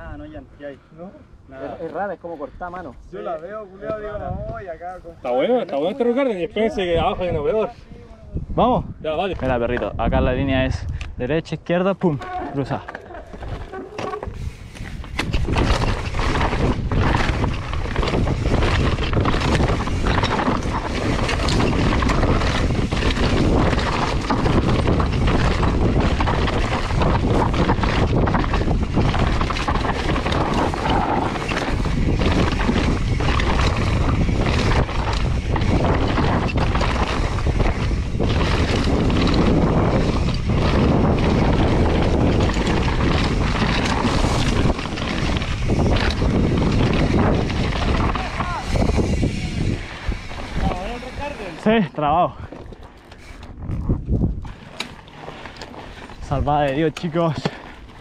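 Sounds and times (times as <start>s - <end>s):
bike rattling: 1.5s - 7.8s, 11.7s - 58.0s
wind rushing over microphone: 2.5s - 58.0s
tyres crunching over dirt and rock: 12.2s - 58.0s.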